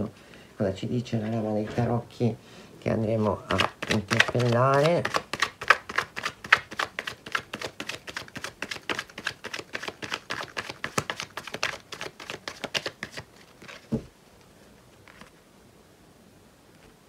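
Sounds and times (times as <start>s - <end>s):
cards shuffling: 3.0s - 14.1s, 15.0s - 15.4s.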